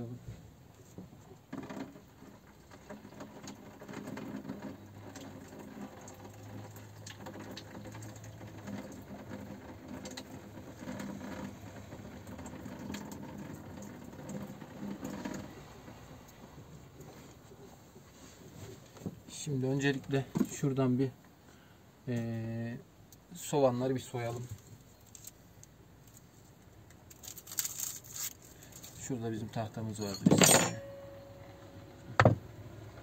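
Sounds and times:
water running in a sink: 4.4s - 15.6s
low steady hum: 21.4s - 33.0s.

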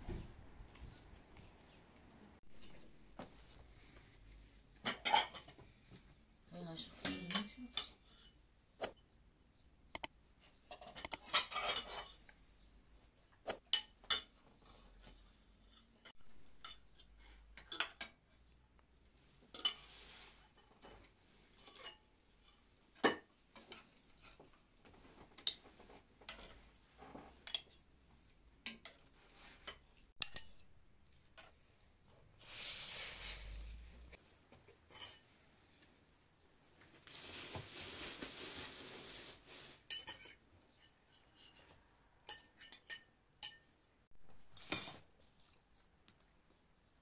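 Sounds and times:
metal utensils clinking on pots: 10.7s - 14.4s, 19.5s - 19.9s, 34.9s - 35.3s, 39.9s - 41.6s, 42.2s - 43.8s.

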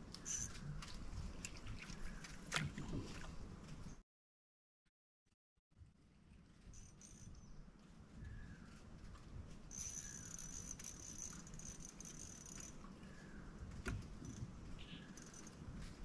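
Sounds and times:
insects buzzing: 9.7s - 12.8s, 14.2s - 15.5s.

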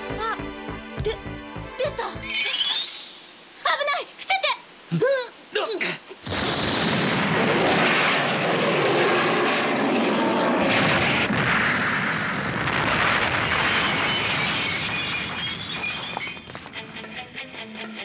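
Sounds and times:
explosion blast: 6.2s - 16.5s.

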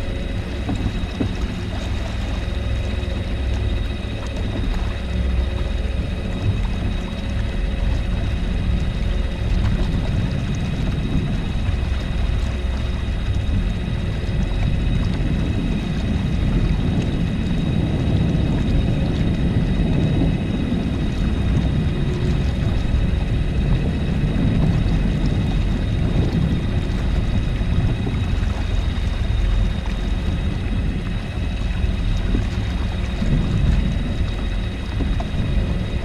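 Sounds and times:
faint high whine: 0.0s - 36.0s
water rushing along hull: 0.0s - 36.0s
wind buffeting microphone: 0.0s - 36.0s.

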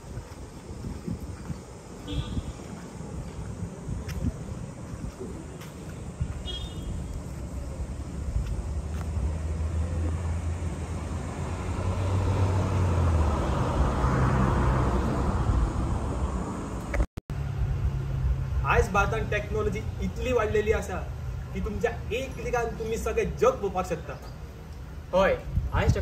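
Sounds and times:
tyre and road noise: 0.0s - 26.0s
vehicle passing by: 7.0s - 23.1s.

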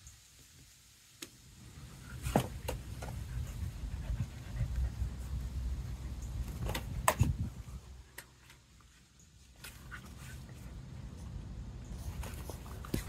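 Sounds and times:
dogs panting: 2.9s - 6.3s.

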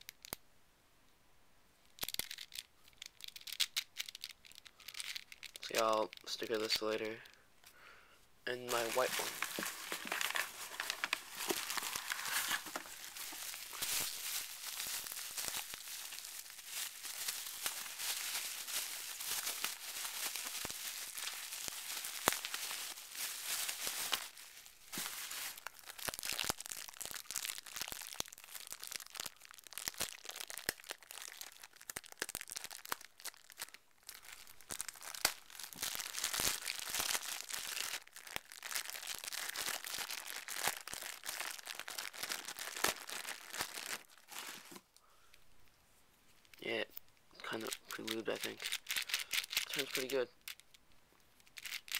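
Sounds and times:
plastic packaging crinkling: 2.0s - 7.3s, 8.6s - 44.9s, 47.4s - 50.8s, 51.4s - 51.9s.

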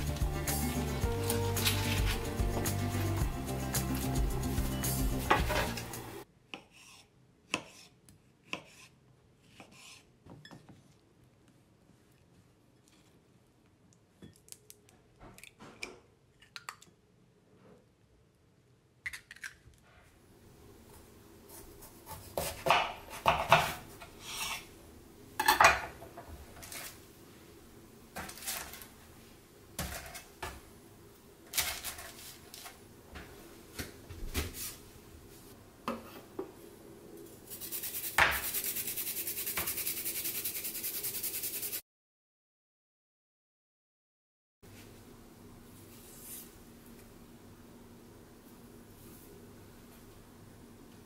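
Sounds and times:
knife cutting on a board: 6.5s - 10.1s
grating on a metal grater: 37.5s - 41.8s.

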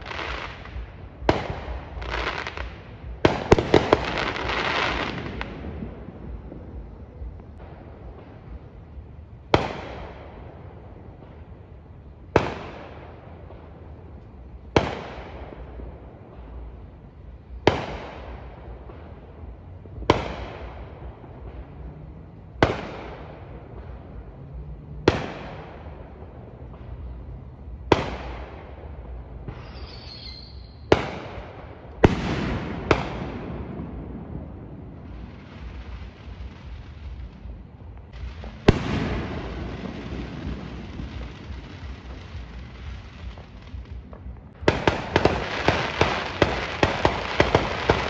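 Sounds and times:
fireworks bangs with echo: 0.0s - 48.0s
fireworks crackle: 0.0s - 48.0s
high whistling hiss: 29.5s - 30.9s.

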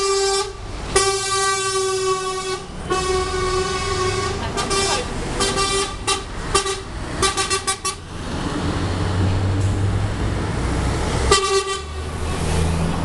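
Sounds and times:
lorry horn toots: 0.0s - 8.0s, 11.3s - 12.1s
heavy lorry engine rumbling: 0.0s - 13.0s.

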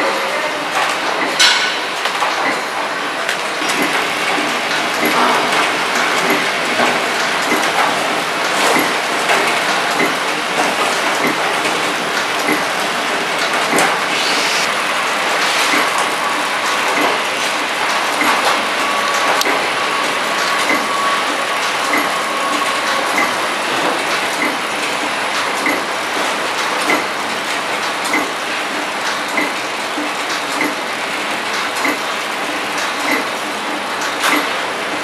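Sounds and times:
thin whine: 13.8s - 16.5s.

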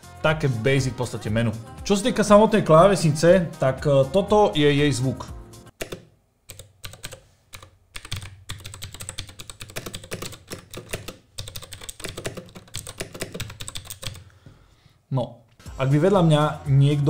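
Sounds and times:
mechanical keyboard keys clacking: 5.8s - 14.2s.

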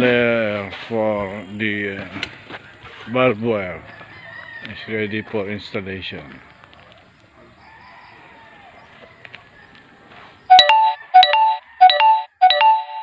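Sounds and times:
electronic chime melody: 10.5s - 13.0s.

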